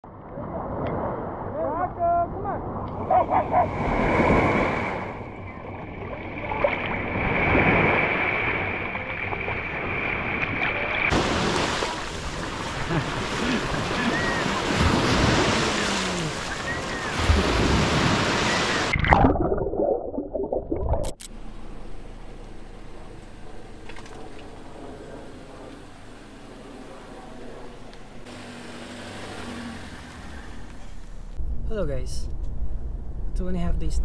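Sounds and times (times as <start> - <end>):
small waves washing on shore: 0.2 - 19.0, 28.2 - 31.1
wind on microphone: 2.6 - 19.0.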